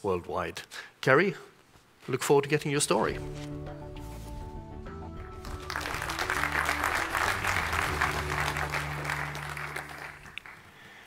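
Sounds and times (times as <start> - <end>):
walk-on music: 3.0 - 10.6
audience applauding: 5.3 - 11.0.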